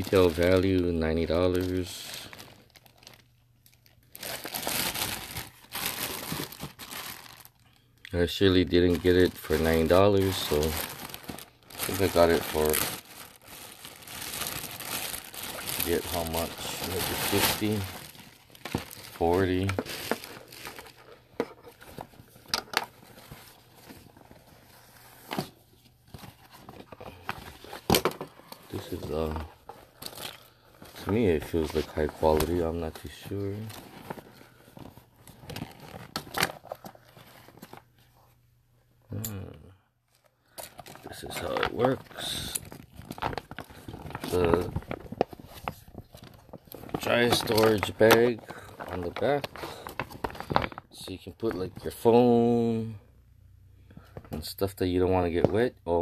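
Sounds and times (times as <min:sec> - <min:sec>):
plastic bag crinkling: 0:00.0 - 0:37.9, 0:40.1 - 0:52.0
fabric bag rustling: 0:08.9 - 0:21.2.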